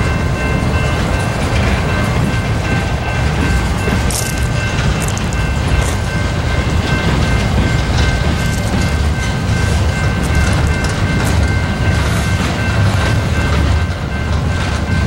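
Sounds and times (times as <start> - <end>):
train wheels rumbling on rail: 0.0 - 15.0.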